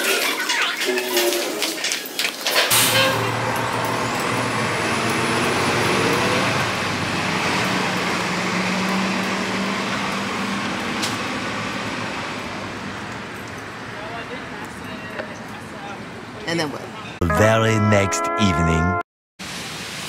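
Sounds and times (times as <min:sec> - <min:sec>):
road noise from passing vehicles: 0:02.4 - 0:17.2
heavy vehicle engine hum: 0:02.7 - 0:16.5.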